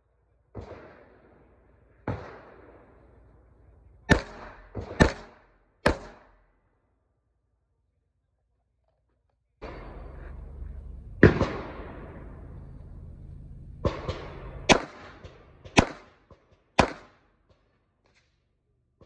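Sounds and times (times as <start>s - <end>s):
handgun shots: 4.1s - 6.3s, 14.7s - 16.2s, 16.8s - 17.2s.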